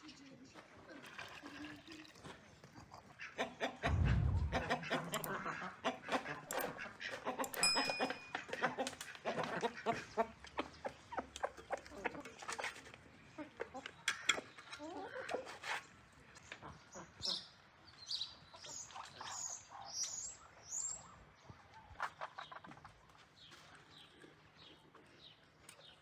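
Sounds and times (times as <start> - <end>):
chickens clucking: 2.7 - 15.8, 21.8 - 25.0
low thump: 3.9 - 5.2.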